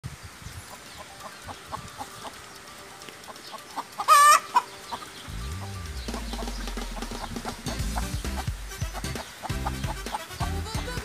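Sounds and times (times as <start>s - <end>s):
chickens clucking: 0.5s - 11.0s
chicken squawk: 4.0s - 5.1s, 6.1s - 11.0s.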